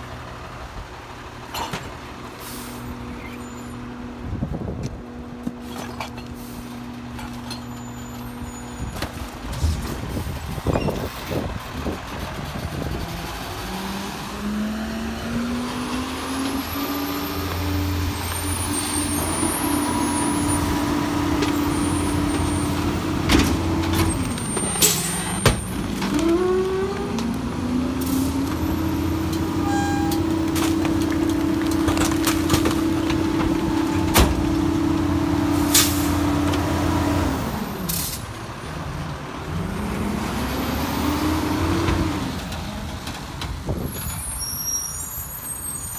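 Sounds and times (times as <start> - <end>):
diesel truck engine revving: 9.5 - 43.9.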